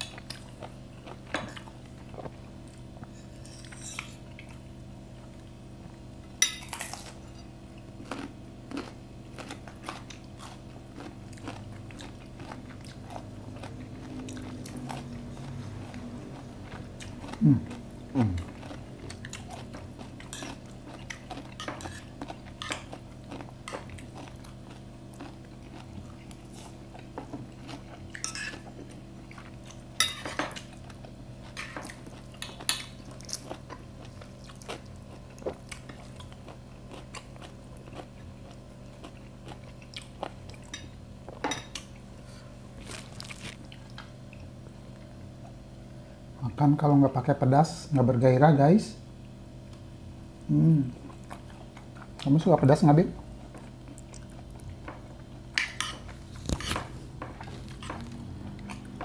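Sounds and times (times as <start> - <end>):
crunchy bites and chewing: 7.8 - 29.9, 42.3 - 44.5, 53.4 - 59.0.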